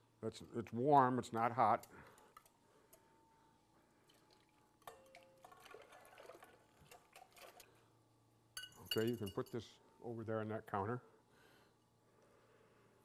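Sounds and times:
milk pouring into steel bowl: 0:04.0 - 0:07.9
small clinks: 0:08.6 - 0:09.6.

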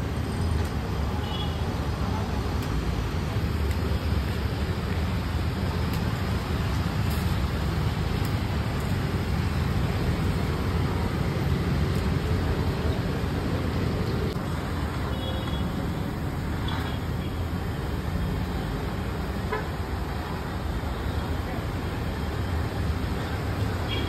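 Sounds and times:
low rumbling background noise: 0:00.0 - 0:24.0.

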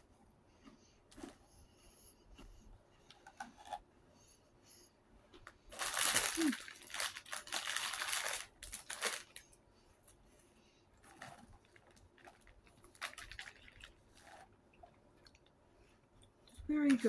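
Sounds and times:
crinkling and rustling: 0:05.3 - 0:10.3, 0:11.0 - 0:17.0.

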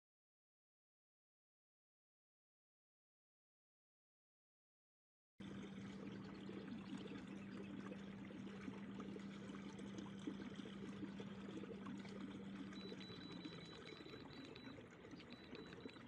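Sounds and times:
low steady hum: 0:05.4 - 0:16.0
water lapping against kayak hull: 0:05.4 - 0:16.0.

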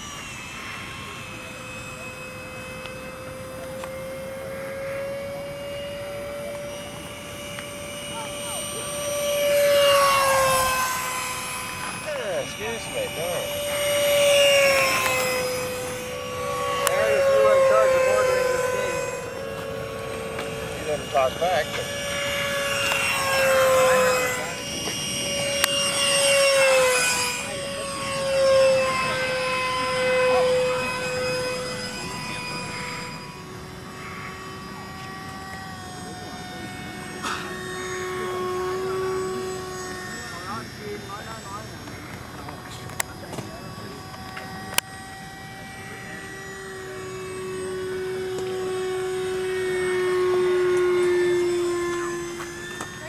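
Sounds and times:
model jet engine whine: 0:00.0 - 0:53.0.

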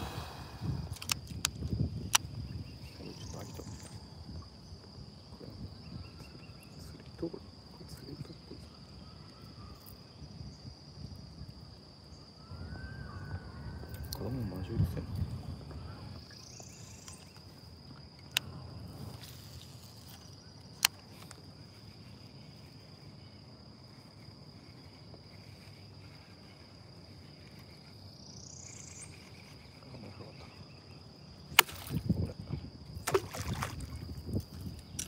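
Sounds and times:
wind and water rumble: 0:00.0 - 0:08.6, 0:09.6 - 0:21.9, 0:31.1 - 0:35.0
sharp clicks: 0:00.9 - 0:02.4.

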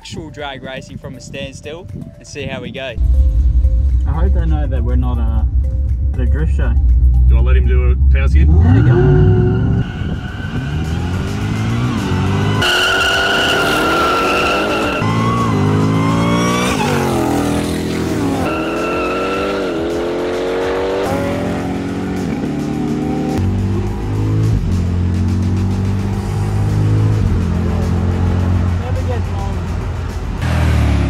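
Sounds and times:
cars accelerating hard: 0:08.4 - 0:31.0
tyre squeal: 0:12.5 - 0:17.3, 0:18.3 - 0:19.8.

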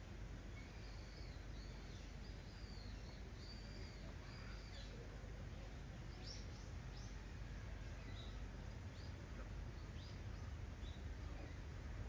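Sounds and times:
low outdoor rumble: 0:00.0 - 0:12.0
faint bird chirps: 0:00.5 - 0:05.1.

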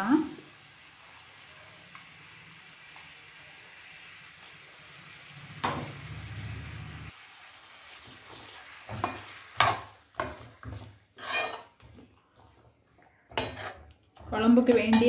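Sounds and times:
metal spoon scraping a metal pan: 0:09.0 - 0:12.7, 0:13.3 - 0:15.0.

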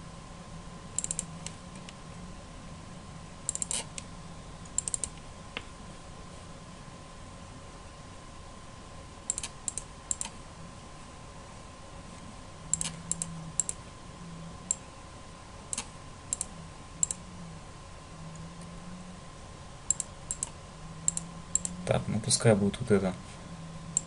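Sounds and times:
faint electrical hum: 0:00.0 - 0:24.0
computer mouse clicks: 0:01.0 - 0:01.9, 0:03.5 - 0:05.7, 0:09.3 - 0:10.4, 0:12.7 - 0:13.8, 0:15.7 - 0:17.2, 0:19.9 - 0:21.8.

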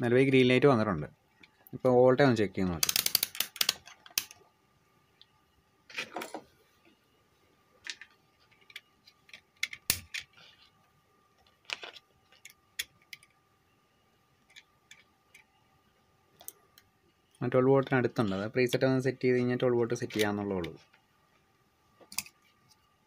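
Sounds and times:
test probes clicking and knocking: 0:02.8 - 0:04.4
faint steady tone: 0:04.0 - 0:23.0.

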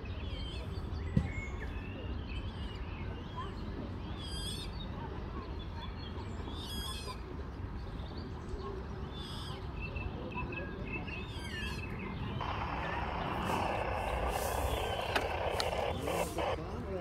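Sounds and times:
songbirds chirping: 0:00.0 - 0:17.0
high rapid bird song phrase: 0:11.0 - 0:17.0
steady low rumble: 0:12.4 - 0:16.9.

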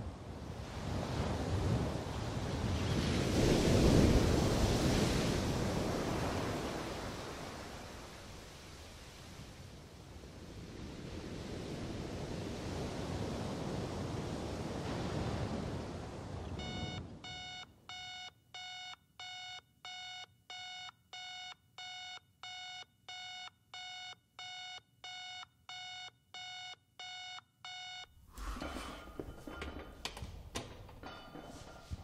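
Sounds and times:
alarm clock beeping: 0:16.6 - 0:28.2
gym weights clanking: 0:28.4 - 0:32.0.

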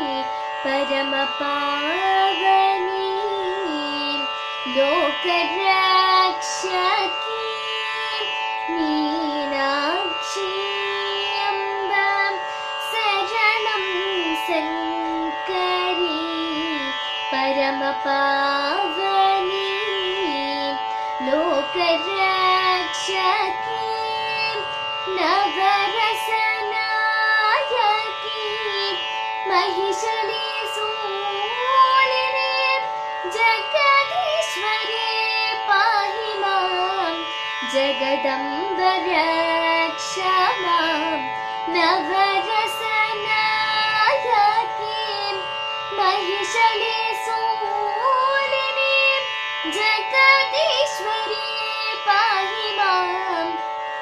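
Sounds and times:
girl singing: 0:00.0 - 0:53.6
steady drone: 0:00.0 - 0:54.0.

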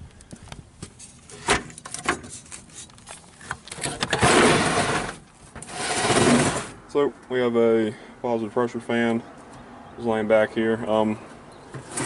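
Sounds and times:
roll-up door rolling up: 0:03.8 - 0:06.7.

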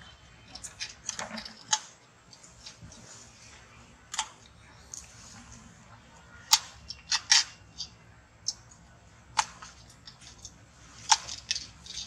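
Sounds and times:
teeth clicking on plastic straw: 0:06.5 - 0:12.0.

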